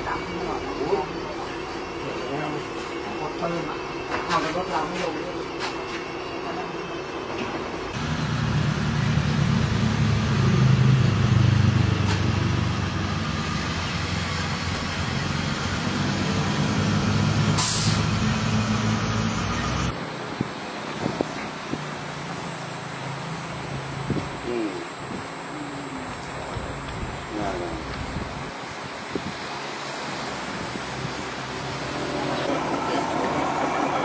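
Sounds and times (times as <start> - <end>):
diesel truck engine rumble: 7.7 - 34.0
short air hiss: 17.6 - 18.1.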